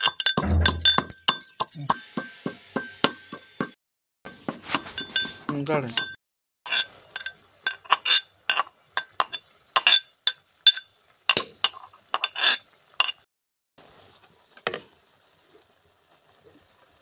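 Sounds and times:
steel pestle clinking in mortar: 0.0s - 13.2s.

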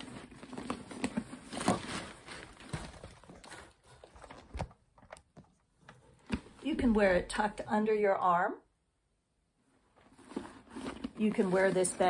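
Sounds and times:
canvas bag rustling: 0.0s - 4.8s, 10.0s - 12.0s.

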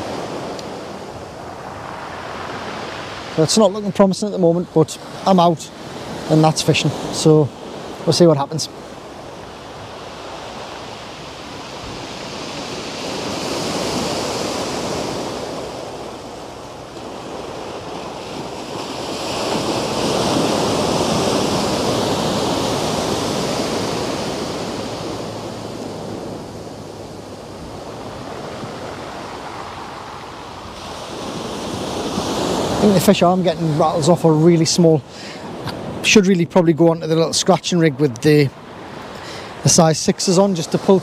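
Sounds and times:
sea waves breaking against wall: 4.9s - 26.8s.

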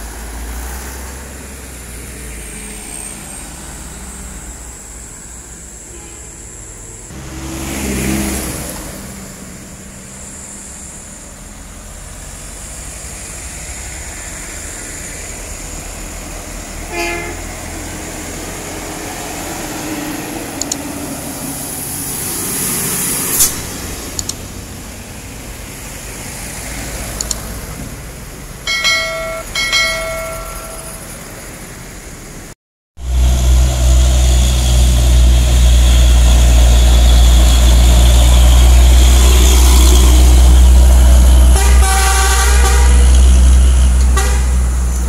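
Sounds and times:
heavy trucks passing: 0.0s - 45.0s
truck horn blasts: 5.9s - 6.5s, 16.9s - 17.8s, 41.4s - 44.9s.

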